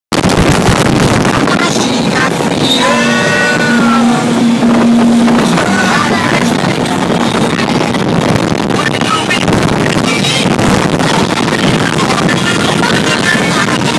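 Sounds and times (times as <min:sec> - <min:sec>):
motorboat engine and water rush: 0:00.1 - 0:13.9
wind buffeting microphone: 0:00.1 - 0:13.9
child calling out: 0:02.6 - 0:04.4.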